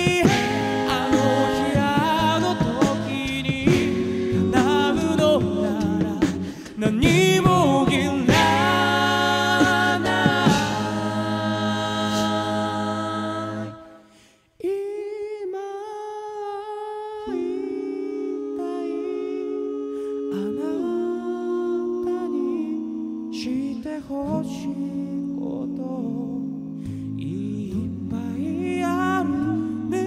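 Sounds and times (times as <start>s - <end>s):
bass voice: 0.0s - 13.7s, 24.3s - 30.0s
a cappella group singing: 0.0s - 30.0s.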